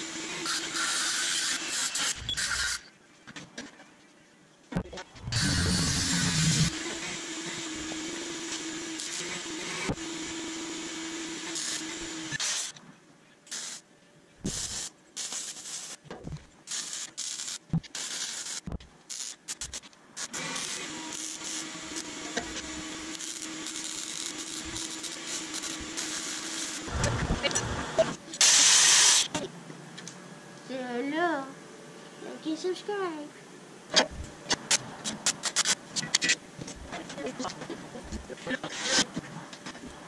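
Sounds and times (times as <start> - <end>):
power tool grinding: 5.2 - 12.7, 20.2 - 28.2.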